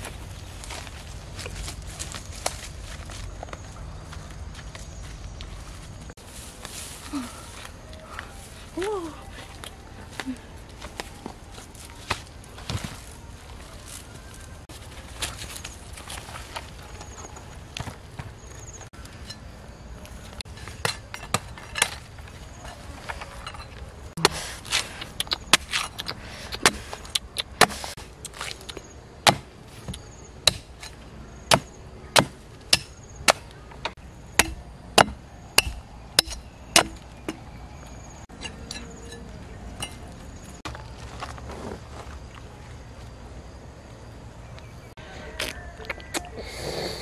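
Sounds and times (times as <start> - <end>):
knife chopping coconut husk: 29.2 - 29.5, 31.5 - 33.5, 34.4 - 37.4.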